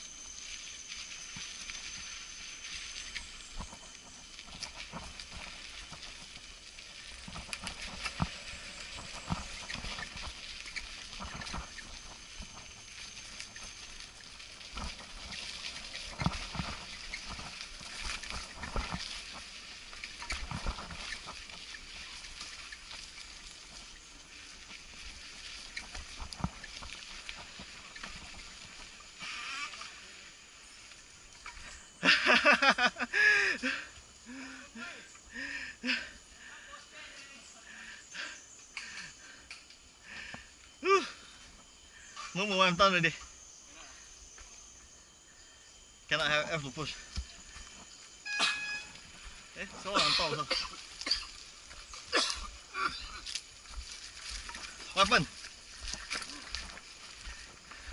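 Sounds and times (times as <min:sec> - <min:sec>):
bike rattling over bumps: 0:00.0 - 0:29.2
tyres crunching on leaves: 0:00.0 - 0:34.3, 0:46.0 - 0:57.9.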